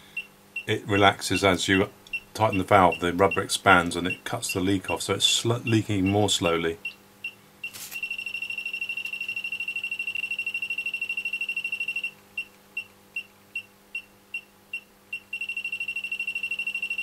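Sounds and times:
leak detector beeping: 5.6s - 17.0s.

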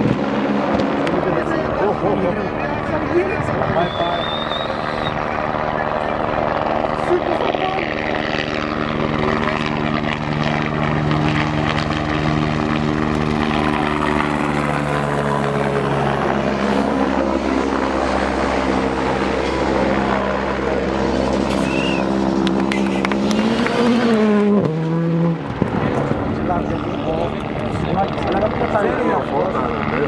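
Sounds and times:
helicopter hovering: 0.0s - 30.0s
rally car engine passing: 20.4s - 27.0s.

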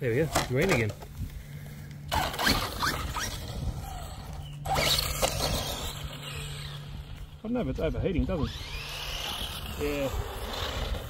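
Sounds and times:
rc truck squeaky drivetrain: 2.1s - 7.4s, 8.2s - 11.0s.

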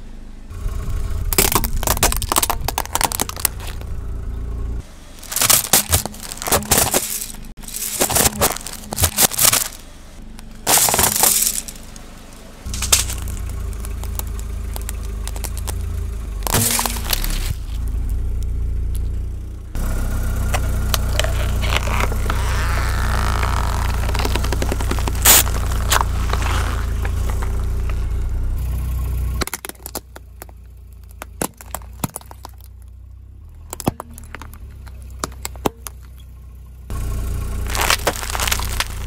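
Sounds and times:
low engine hum: 0.0s - 39.0s
pencils snapping and cracking: 1.4s - 3.8s, 5.2s - 9.8s, 37.7s - 39.0s
plastic toy cracking: 1.4s - 3.9s, 5.2s - 9.8s, 12.7s - 17.8s, 20.5s - 26.4s, 37.7s - 39.0s
squeeze bottle bursting and squirting: 5.2s - 9.8s, 20.9s - 27.5s, 37.7s - 39.0s.

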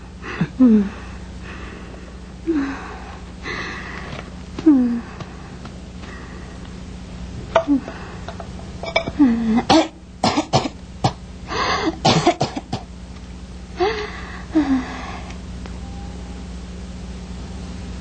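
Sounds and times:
steady low hum: 0.0s - 18.0s
woman groaning: 4.6s - 5.1s, 7.6s - 8.0s, 13.8s - 15.0s
woman coughing hoarsely: 9.0s - 11.2s, 12.0s - 12.9s.

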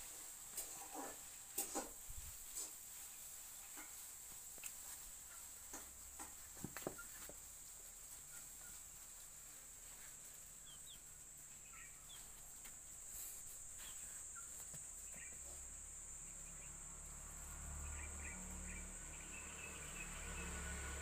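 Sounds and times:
faint chirps: 8.1s - 20.8s.

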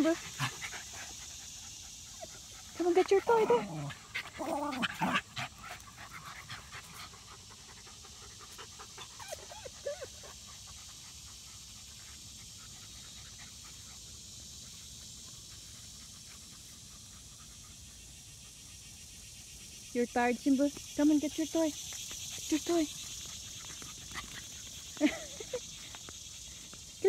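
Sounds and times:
dog panting: 0.0s - 19.8s, 21.6s - 27.0s.

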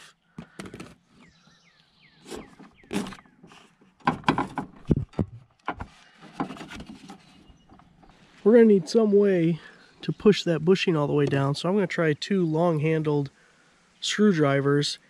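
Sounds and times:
plastic bushing clicking and knocking: 0.4s - 1.3s, 2.3s - 8.2s.

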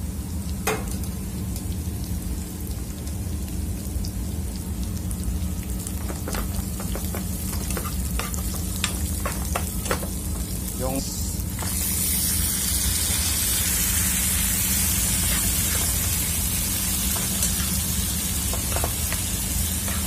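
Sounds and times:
steady low hum: 0.0s - 20.0s
onion and garlic sizzling in pan: 0.2s - 20.0s.

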